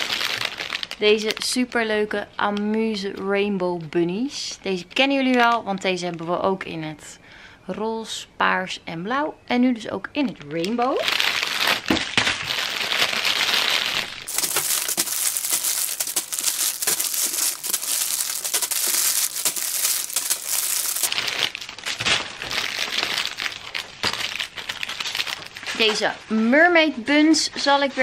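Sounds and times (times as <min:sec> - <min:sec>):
plastic bags crinkling: 0:00.0 - 0:01.5, 0:10.6 - 0:26.1.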